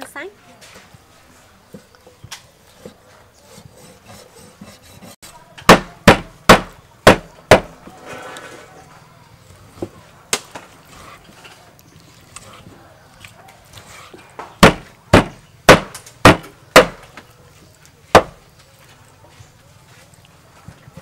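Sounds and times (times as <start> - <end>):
cleaver chopping on wooden block: 5.7 - 7.7, 14.6 - 17.0, 18.1 - 18.4.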